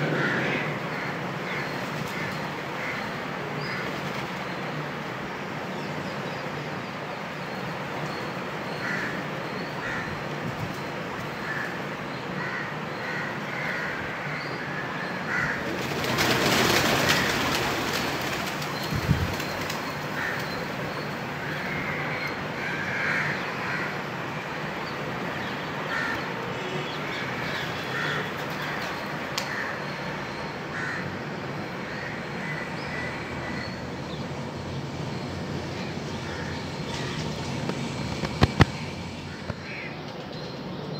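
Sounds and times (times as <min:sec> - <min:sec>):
crows cawing: 0:00.0 - 0:03.9, 0:08.7 - 0:10.3, 0:11.3 - 0:18.6, 0:19.9 - 0:24.6, 0:25.8 - 0:26.4, 0:27.1 - 0:31.2, 0:31.8 - 0:33.8, 0:35.8 - 0:37.2, 0:39.2 - 0:40.0
pigeon wings flapping: 0:15.7 - 0:20.5, 0:38.0 - 0:38.8.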